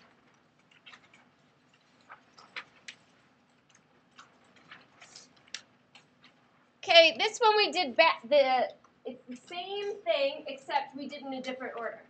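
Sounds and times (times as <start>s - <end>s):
paper clicks: 0.0s - 6.4s
paper rustling: 0.0s - 6.4s.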